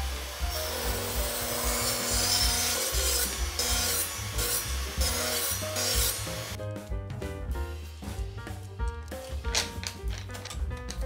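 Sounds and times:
table saw ripping a board: 0:00.0 - 0:06.6
background music: 0:00.0 - 0:11.0.

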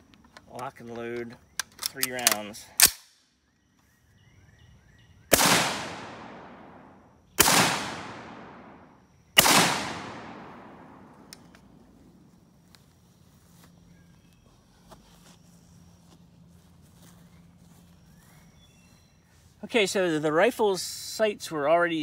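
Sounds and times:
rifle shots with echo: 0:05.3 - 0:11.9.

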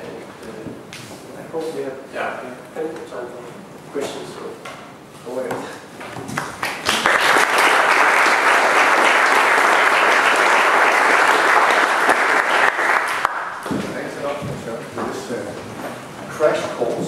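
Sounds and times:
audience applauding: 0:06.3 - 0:13.6.

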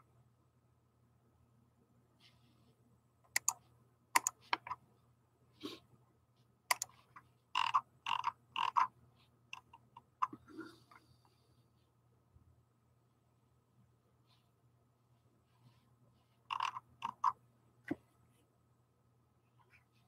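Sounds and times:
computer mouse clicks: 0:03.3 - 0:03.6, 0:04.2 - 0:04.8, 0:06.7 - 0:07.0, 0:07.6 - 0:08.9, 0:16.5 - 0:17.4
keyboard keystrokes: 0:03.3 - 0:03.6, 0:04.2 - 0:04.4.

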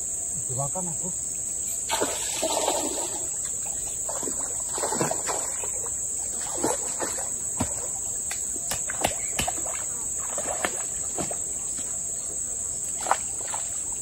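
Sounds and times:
high insect drone: 0:00.0 - 0:14.0
fish splashing in water: 0:01.9 - 0:11.9, 0:12.8 - 0:14.0.

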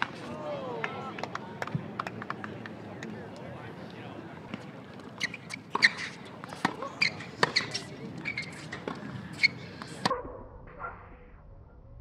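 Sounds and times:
tennis balls bouncing on court: 0:04.5 - 0:09.9
tennis balls struck by rackets: 0:05.6 - 0:09.2.

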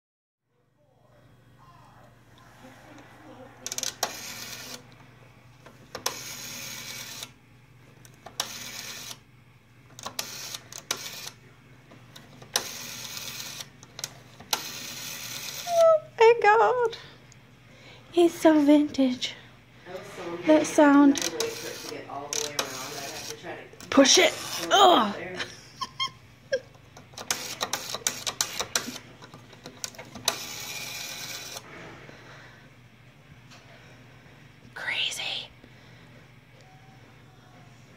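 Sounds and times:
steady low hum: 0:00.5 - 0:37.9
rotary dial whirring: 0:02.3 - 0:15.9, 0:20.7 - 0:24.8, 0:25.8 - 0:32.6.

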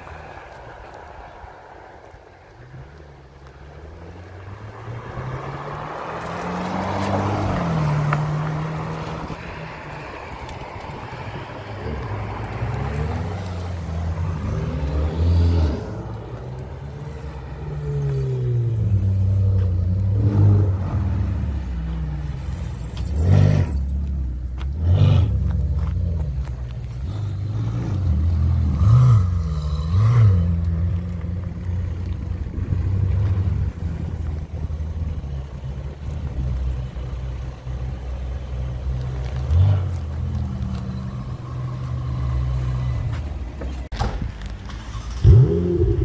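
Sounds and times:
sports car engines passing: 0:00.0 - 0:46.0.

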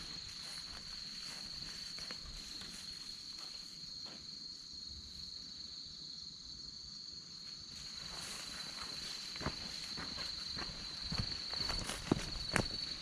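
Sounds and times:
faint rustles in grass: 0:00.0 - 0:04.4, 0:07.3 - 0:13.0
insect chorus chirring: 0:00.0 - 0:13.0.

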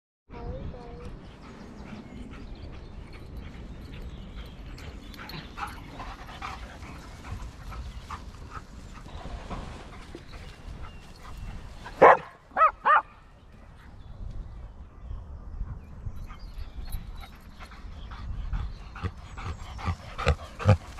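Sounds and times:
dog barking: 0:12.0 - 0:13.1.

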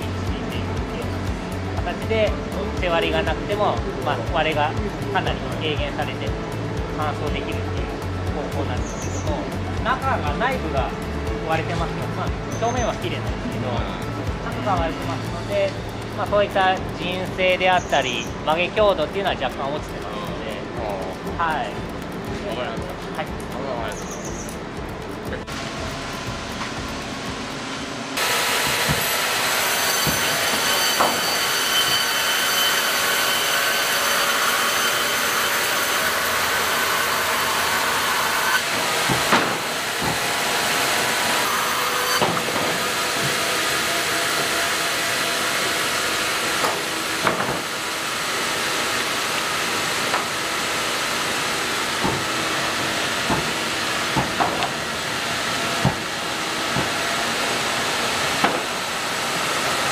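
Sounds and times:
machine whine: 0:00.0 - 0:59.9
sawmill machinery din: 0:00.0 - 0:59.9
boards knocking on conveyors: 0:36.5 - 0:40.7, 0:46.6 - 0:47.8, 0:52.0 - 0:52.6, 0:53.2 - 0:54.9, 0:55.7 - 0:56.1.

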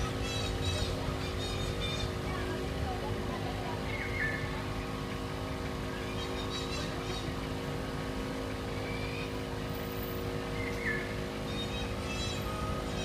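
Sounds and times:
engine hum: 0:00.0 - 0:13.0.

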